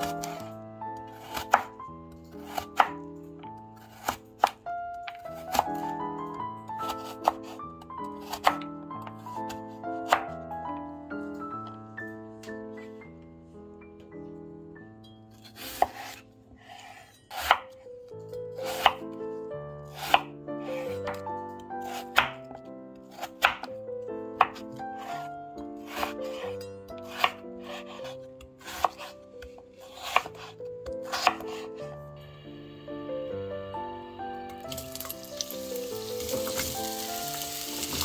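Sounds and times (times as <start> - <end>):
knife chopping on a cutting board: 0.0 - 3.0, 3.8 - 5.9, 6.8 - 7.6, 8.2 - 10.4, 15.4 - 17.8, 18.6 - 19.1, 19.9 - 21.2, 21.8 - 23.8, 24.4 - 31.8
background music: 0.0 - 38.0.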